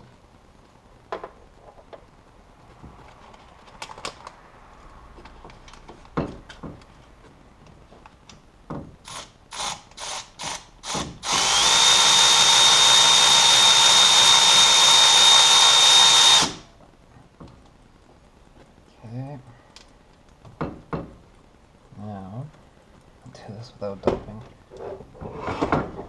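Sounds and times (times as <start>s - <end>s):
electric ratchet whining: 9.0s - 16.7s.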